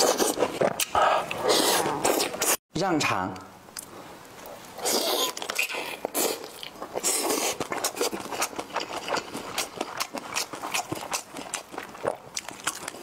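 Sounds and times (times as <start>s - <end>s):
wet chewing and biting: 4.4s - 13.0s.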